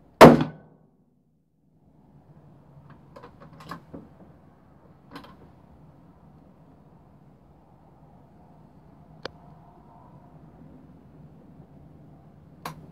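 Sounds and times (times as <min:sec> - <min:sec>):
rifle shot: 0:00.2 - 0:00.6.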